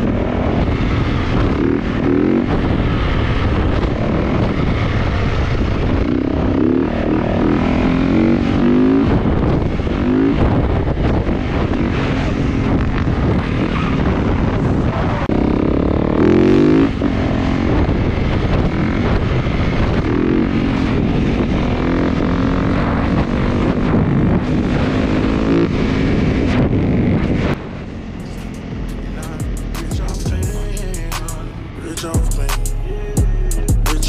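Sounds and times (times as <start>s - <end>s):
wind buffeting microphone: 0.0s - 30.4s
motorcycle engine revving: 0.0s - 34.0s.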